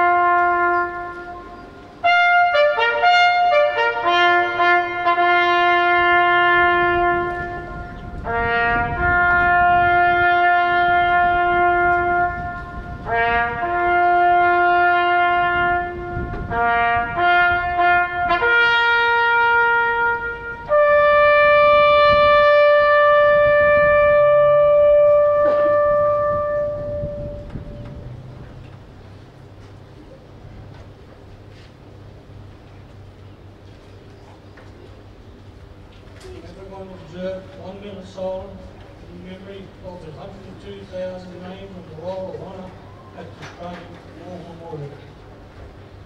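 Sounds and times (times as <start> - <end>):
solo trumpet playing: 0.0 - 28.4.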